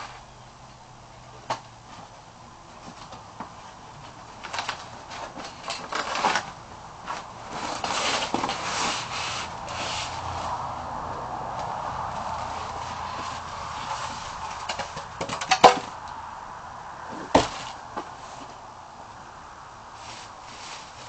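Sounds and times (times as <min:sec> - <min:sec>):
cardboard scraping and rustling: 0:02.8 - 0:10.7, 0:12.1 - 0:16.0, 0:17.1 - 0:18.6, 0:20.0 - 0:21.0.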